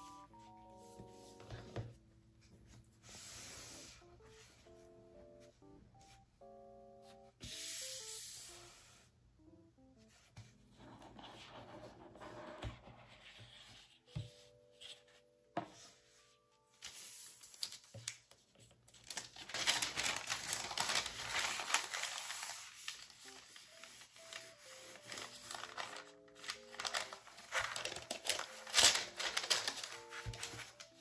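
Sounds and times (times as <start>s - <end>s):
tissue paper crinkling: 16.7s - 31.0s.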